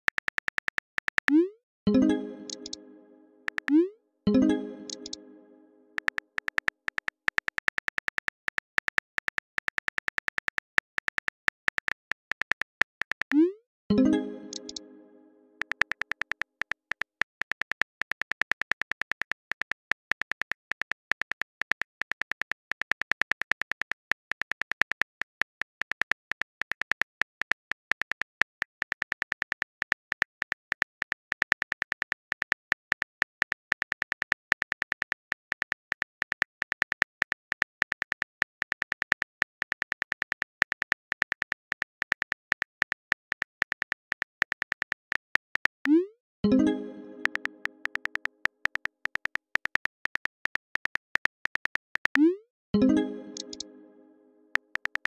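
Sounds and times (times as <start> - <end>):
phone keyboard typing clicks: 0.0 - 1.4, 2.5 - 2.8, 4.9 - 5.2, 6.0 - 13.4, 14.5 - 14.8, 25.0 - 52.3, 53.0 - 53.7, 54.5 - 55.0.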